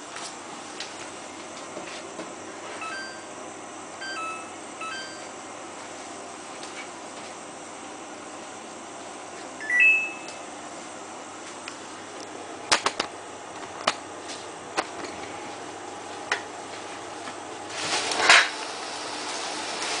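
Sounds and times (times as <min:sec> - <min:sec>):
rising electronic chime: 0:09.6 - 0:10.4.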